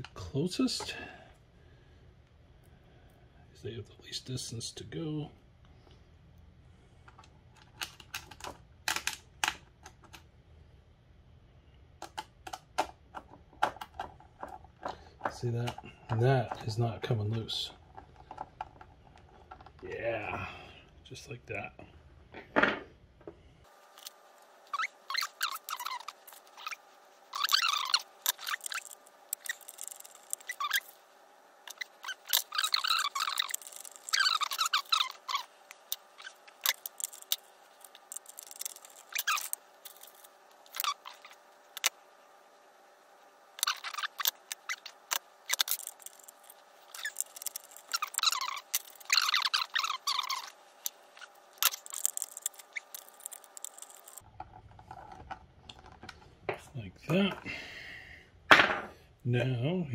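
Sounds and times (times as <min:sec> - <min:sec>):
hand tools squeaking: 0:13.7 - 0:20.5, 0:24.7 - 0:31.0, 0:31.7 - 0:41.9, 0:43.6 - 0:54.2.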